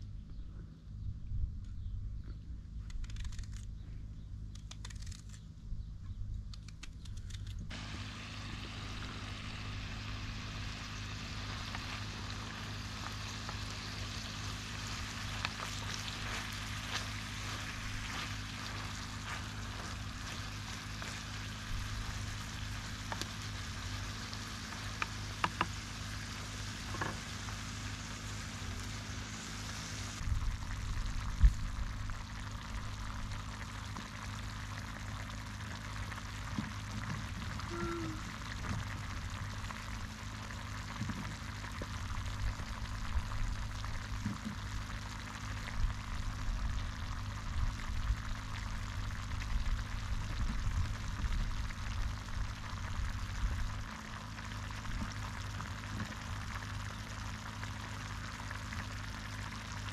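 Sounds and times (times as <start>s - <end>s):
food sizzling in a pan: 7.7s - 30.1s.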